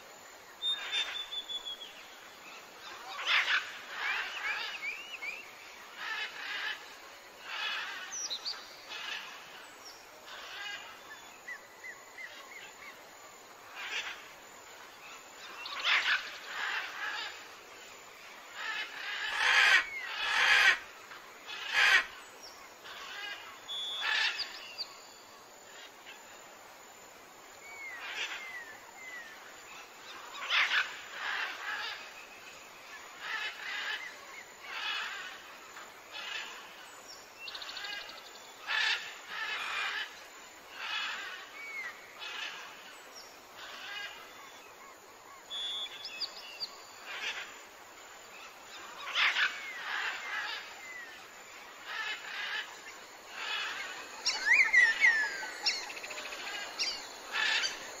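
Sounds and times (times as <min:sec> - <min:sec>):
whistled bird chirps: 0:00.6 - 0:01.9
harsh bird calls: 0:18.6 - 0:20.9, 0:48.5 - 0:58.0.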